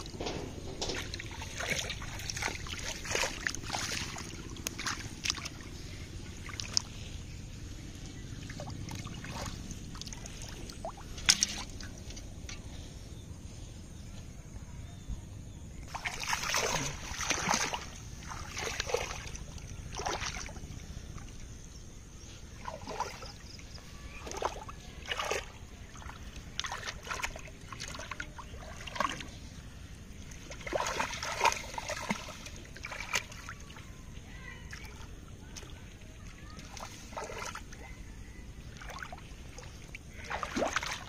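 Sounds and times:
hands splashing in muddy water: 0:00.8 - 0:07.0, 0:08.4 - 0:12.6, 0:15.9 - 0:20.7, 0:24.1 - 0:29.5, 0:30.2 - 0:34.0, 0:34.7 - 0:37.9, 0:38.6 - 0:41.0.

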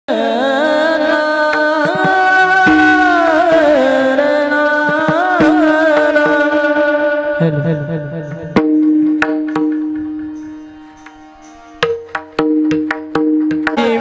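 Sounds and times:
man singing devotional melody: 0:00.1 - 0:09.7, 0:13.7 - 0:14.0
drum strokes: 0:01.8 - 0:04.2, 0:08.3 - 0:14.0.

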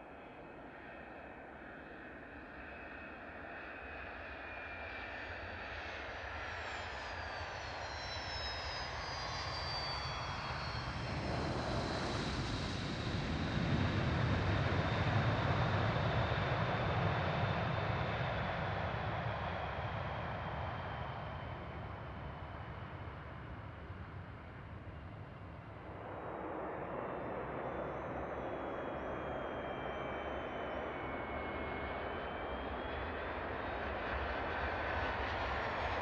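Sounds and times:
jet turbofan whine: 0:00.1 - 0:36.0
low jet engine rumble: 0:08.8 - 0:36.0.

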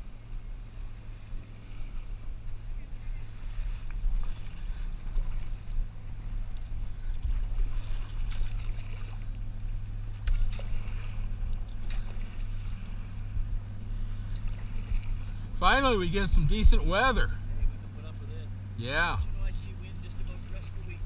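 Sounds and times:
steady low hum: 0:00.0 - 0:21.0
kayak paddle splashing in water: 0:03.1 - 0:16.0.

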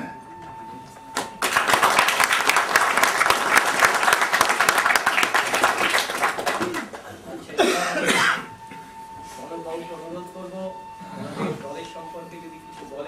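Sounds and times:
crowd applauding: 0:01.2 - 0:07.2.

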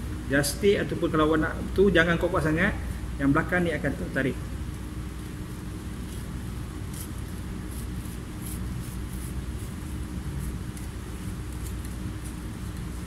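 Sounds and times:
low room hum: 0:00.0 - 0:13.0
knife scraping fish skin: 0:05.9 - 0:13.0.

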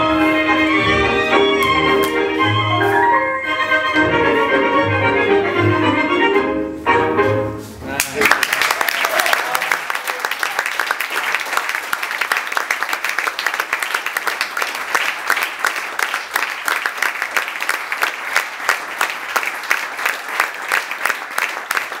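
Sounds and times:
audience applauding: 0:08.0 - 0:22.0.

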